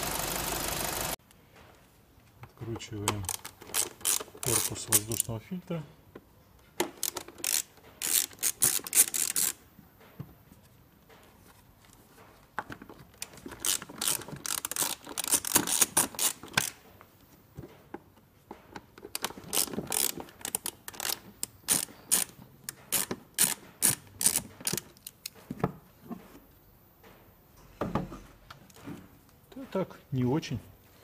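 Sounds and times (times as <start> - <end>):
hand ratchet clicking: 3.1 - 5.3, 6.8 - 9.6, 13.5 - 16.8, 19.2 - 25.4.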